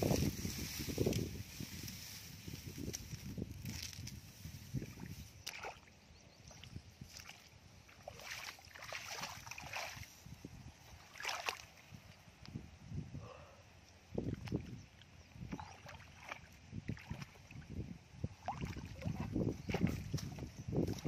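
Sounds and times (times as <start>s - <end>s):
straw rustling: 0.0s - 5.8s
feet splashing in muddy water: 5.0s - 5.9s, 6.5s - 10.1s, 11.0s - 11.8s, 15.5s - 17.6s, 18.4s - 21.0s.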